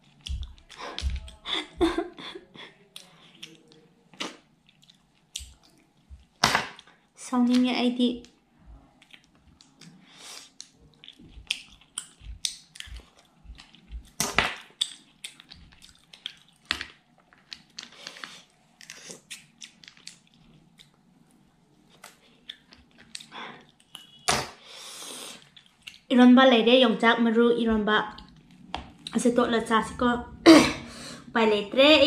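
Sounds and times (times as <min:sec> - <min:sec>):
person chewing food: 0:00.0 - 0:07.1, 0:08.2 - 0:26.1, 0:28.1 - 0:29.2
mouth clicks and smacks: 0:09.0 - 0:16.7.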